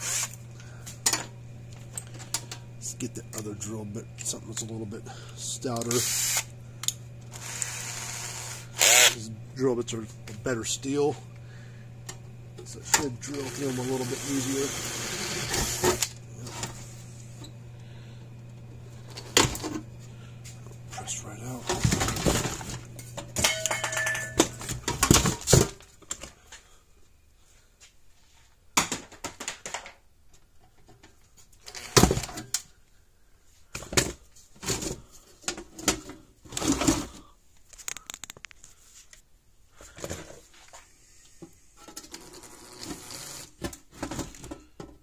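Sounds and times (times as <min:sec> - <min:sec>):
metal parts and tools clinking: 0:23.4 - 0:25.1.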